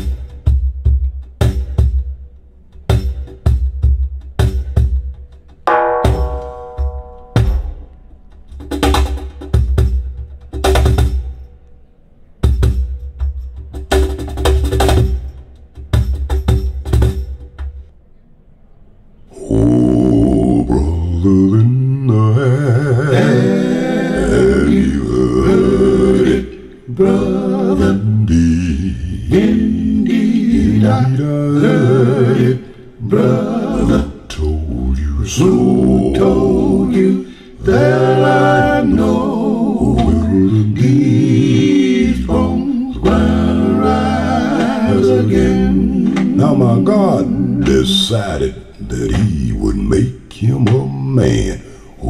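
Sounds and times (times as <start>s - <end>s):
singing over loudspeakers: 21.6s - 51.7s.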